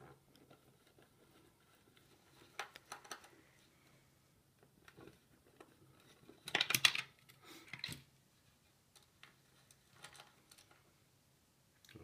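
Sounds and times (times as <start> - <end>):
screws and plastic cover rattling: 9.0 - 10.8.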